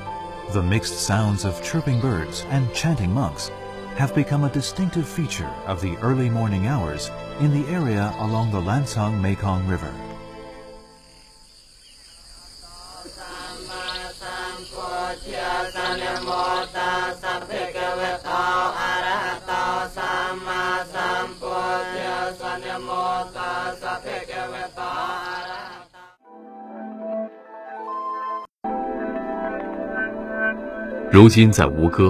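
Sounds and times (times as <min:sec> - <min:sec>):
insect drone: 0:09.9 - 0:26.2
monks chanting together: 0:12.6 - 0:26.2.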